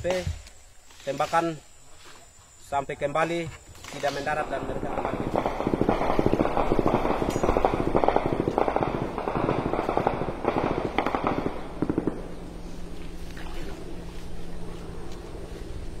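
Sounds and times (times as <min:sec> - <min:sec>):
automatic rifle fire: 0:04.0 - 0:12.2.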